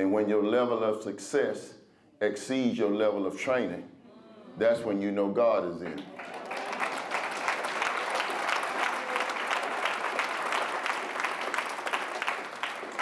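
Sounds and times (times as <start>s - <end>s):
audience applauding: 5.8s - 13.0s.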